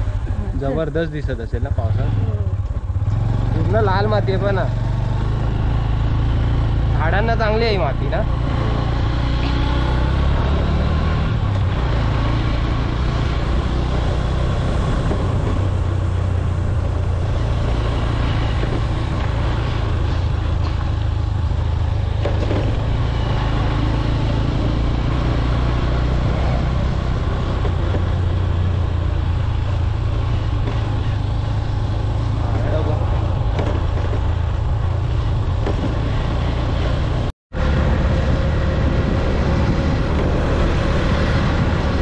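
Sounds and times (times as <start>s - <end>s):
road noise: 0.0s - 42.0s.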